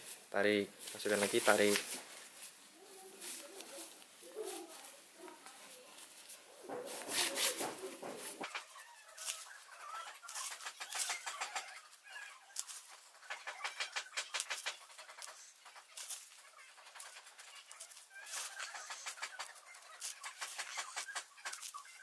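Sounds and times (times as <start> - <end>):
fabric rustling and crinkling: 0.0 - 22.0.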